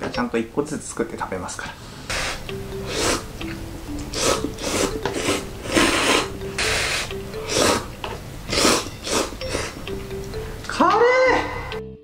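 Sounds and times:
noisy noodle slurping: 2.1 - 3.3, 4.0 - 7.9, 8.5 - 9.8.

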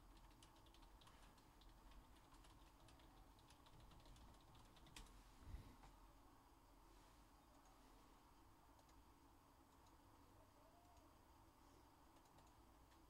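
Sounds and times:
keyboard typing: 0.0 - 5.1, 12.1 - 13.0.

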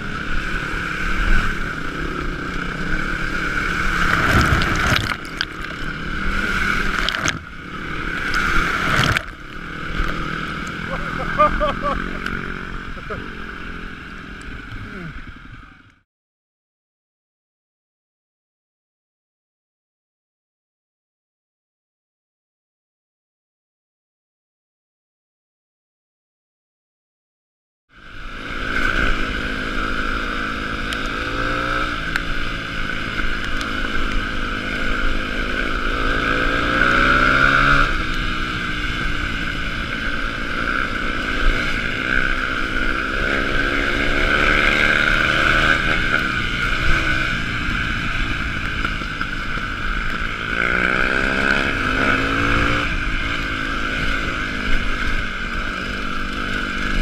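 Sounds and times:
trail bike engine revving: 0.0 - 15.8, 28.0 - 57.0.

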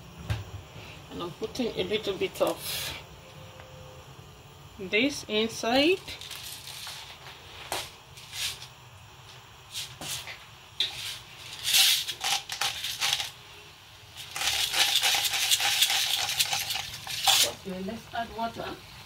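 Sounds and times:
salt grinder crunching: 11.6 - 13.4, 14.2 - 17.6.

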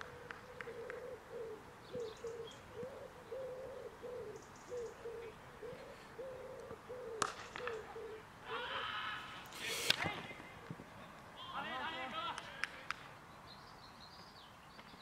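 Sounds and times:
pigeon cooing: 0.0 - 9.0.

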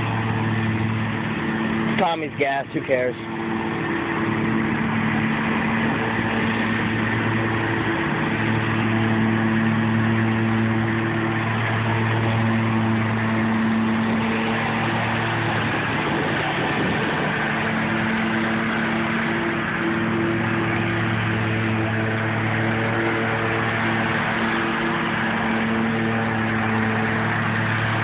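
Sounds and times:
mower engine running: 0.0 - 28.0.

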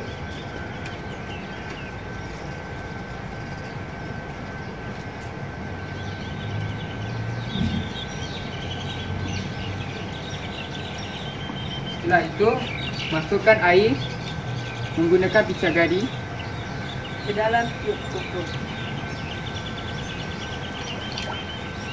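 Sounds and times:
distant traffic rumble: 0.0 - 21.9
faint bird chirps: 18.6 - 21.9.

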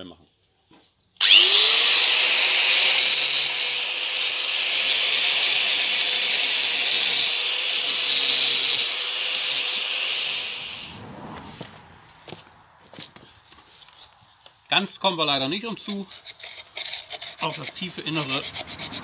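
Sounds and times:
power grinder grinding metal: 1.2 - 11.0, 15.8 - 19.0.

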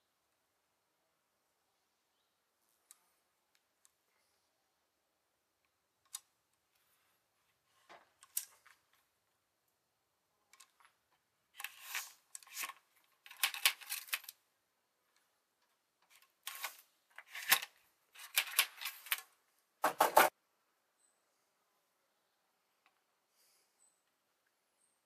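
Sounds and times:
small metallic clicks and scrapes: 7.7 - 9.0, 10.5 - 14.4, 15.1 - 19.3.

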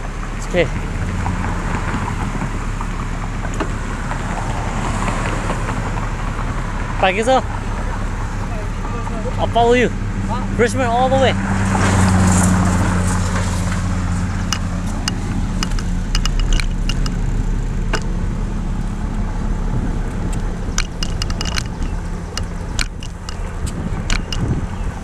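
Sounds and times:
vehicle engine humming: 0.0 - 25.0
bicycle clicks and rattles: 14.4 - 17.3, 20.3 - 24.5.

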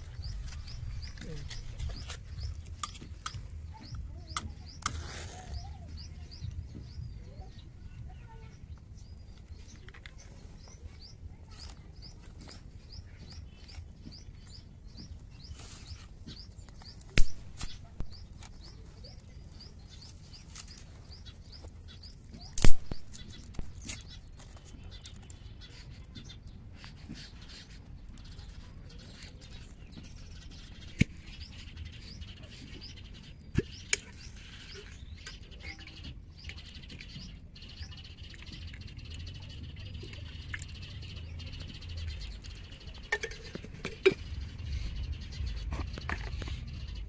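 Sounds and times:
twig fire crackling: 0.0 - 5.7, 11.5 - 32.2
small birds chirping: 0.0 - 47.0
loud sharp cracks: 22.6 - 23.2.

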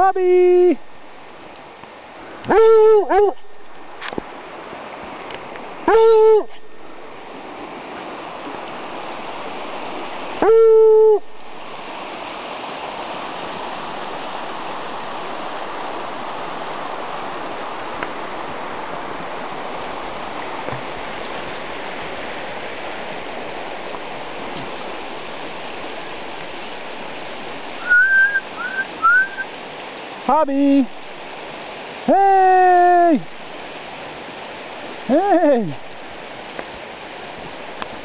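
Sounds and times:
stream running: 0.0 - 38.0
drawn-out ooo call: 2.4 - 3.5, 5.9 - 6.8, 10.4 - 11.3, 27.8 - 29.5.

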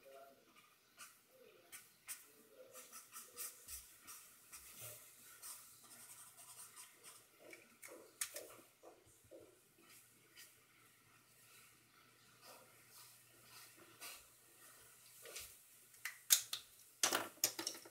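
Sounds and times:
pen scratching on paper: 0.5 - 8.6.

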